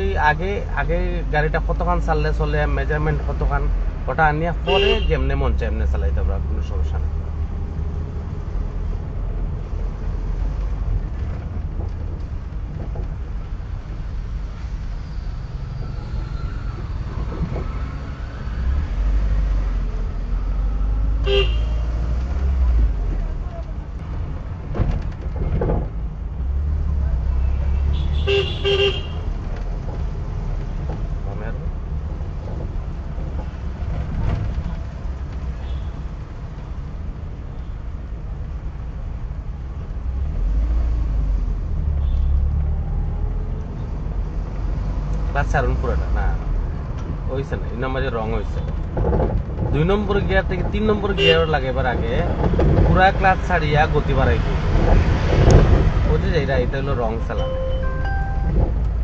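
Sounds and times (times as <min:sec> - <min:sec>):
car engine low rumble: 0:00.0 - 0:59.0
short car horn beep: 0:57.4 - 0:58.6.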